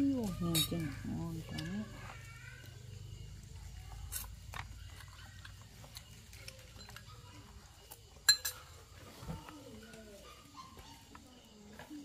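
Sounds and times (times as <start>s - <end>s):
utensils clicking against bowls: 0.0s - 2.3s, 4.0s - 8.8s.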